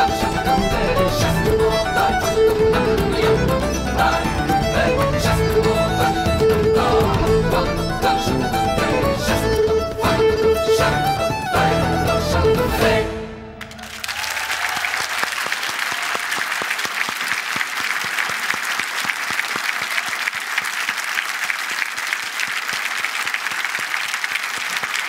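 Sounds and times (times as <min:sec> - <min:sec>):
music: 0:00.0 - 0:13.8
audience applauding: 0:13.6 - 0:25.0.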